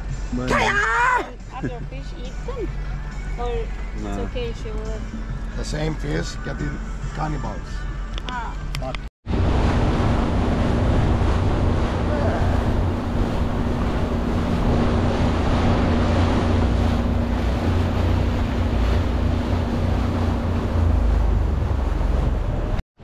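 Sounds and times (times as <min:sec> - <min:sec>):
boat engine humming: 0:00.0 - 0:22.8
water rushing: 0:09.3 - 0:22.8
wind buffeting microphone: 0:09.3 - 0:22.8.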